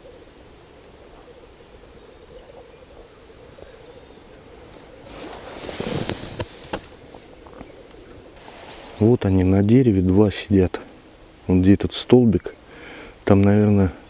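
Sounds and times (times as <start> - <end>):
rustling with knocks: 4.7 - 9.0.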